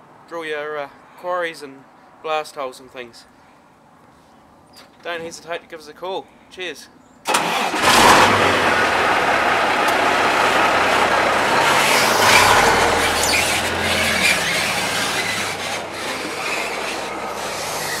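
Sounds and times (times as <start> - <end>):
truck diesel engine pulling away: 7.4 - 18.0.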